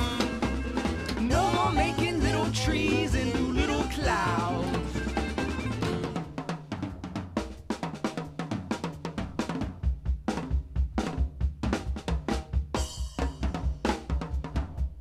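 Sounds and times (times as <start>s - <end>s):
band playing: 0.0s - 6.6s.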